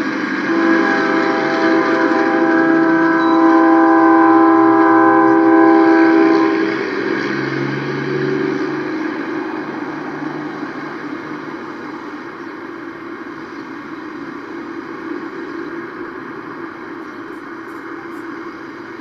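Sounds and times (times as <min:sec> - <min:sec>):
steady rumbling: 0:00.0 - 0:19.0
train horn blast: 0:00.1 - 0:11.4, 0:16.9 - 0:18.9.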